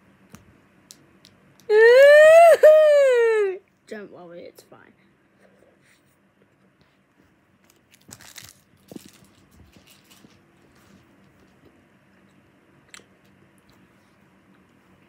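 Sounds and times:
soft rustling and crinkling: 5.4 - 12.4.

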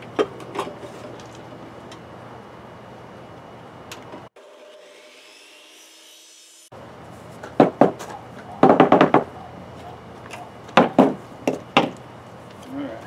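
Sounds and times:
miter saw winding down: 4.4 - 6.7.

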